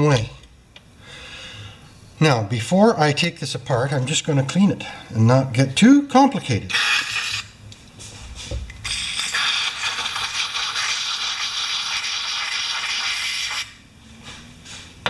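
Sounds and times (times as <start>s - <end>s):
aerosol spray hissing: 8.8s - 13.8s.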